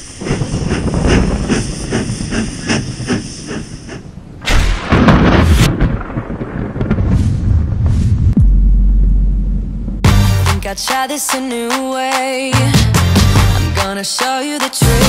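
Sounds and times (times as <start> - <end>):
fast even chugging: 0.0 - 4.0
loud rushing burst: 0.0 - 10.6.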